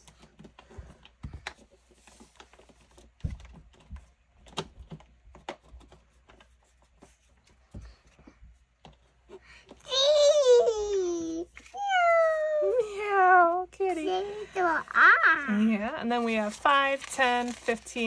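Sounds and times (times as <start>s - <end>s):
banknotes rustling and flicking: 0.0s - 9.6s, 15.8s - 18.0s.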